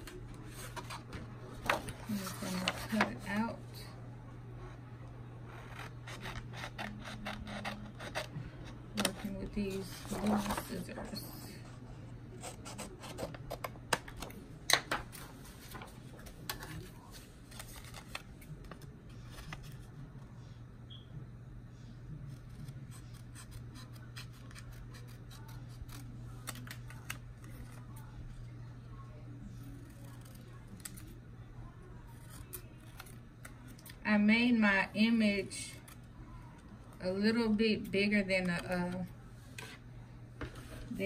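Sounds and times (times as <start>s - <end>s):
scissors snipping paper: 5.6s - 8.3s, 22.3s - 28.1s.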